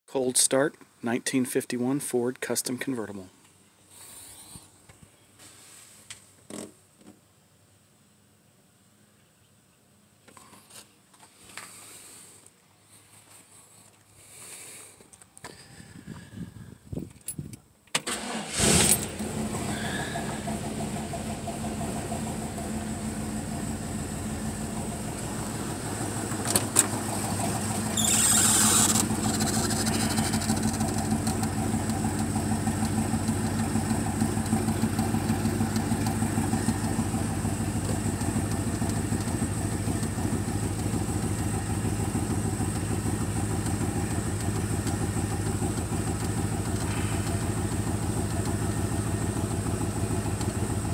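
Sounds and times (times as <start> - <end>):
car engine starting and idling: 17.9 - 50.9.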